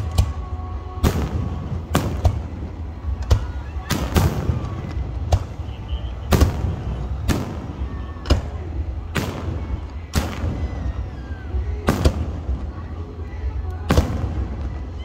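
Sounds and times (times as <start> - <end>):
fireworks booming with echo: 0.0 - 15.0.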